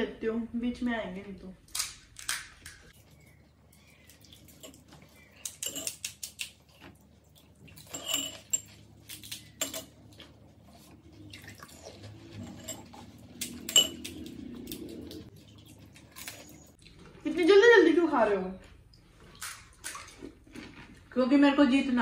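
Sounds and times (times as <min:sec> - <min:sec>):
spoons clinking against bowls: 0:04.5 - 0:06.4, 0:07.7 - 0:10.0, 0:11.7 - 0:14.4.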